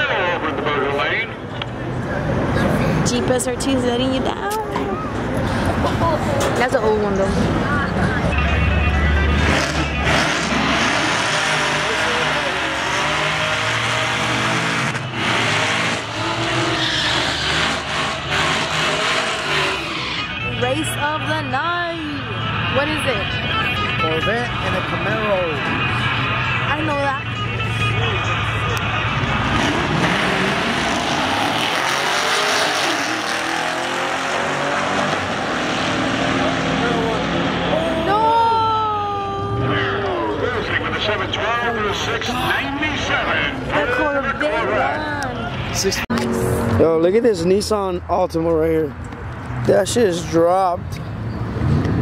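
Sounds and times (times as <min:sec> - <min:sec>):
racing car engine at high revs: 0:05.6 - 0:21.6, 0:28.5 - 0:38.4, 0:51.4 - 0:52.0.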